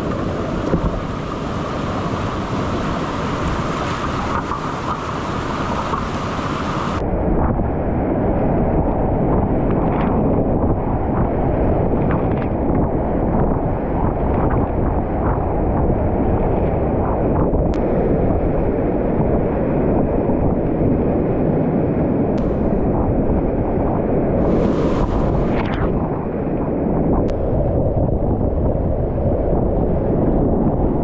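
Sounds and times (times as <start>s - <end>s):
paddle strokes splashing: 0.0s - 7.0s
whitewater rapids rushing: 0.0s - 7.0s.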